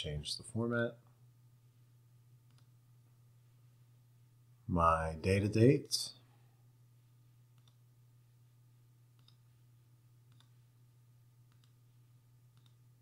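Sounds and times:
low steady hum: 0.0s - 13.0s
computer mouse clicks: 2.4s - 2.7s, 7.5s - 7.8s, 9.2s - 9.5s, 10.3s - 10.6s, 11.5s - 11.8s, 12.5s - 12.8s.

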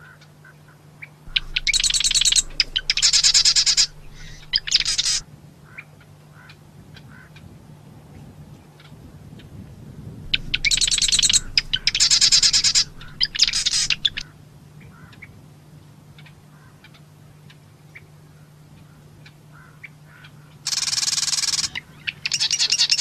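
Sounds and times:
faint bird ticks: 1.3s - 5.2s, 10.2s - 14.3s
wren rattling trills: 1.3s - 5.2s, 10.2s - 14.2s.

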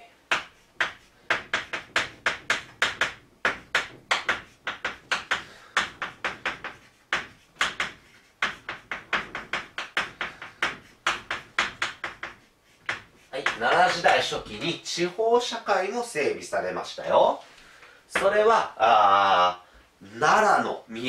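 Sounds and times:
chalk scraping on chalkboard: 0.3s - 14.6s.

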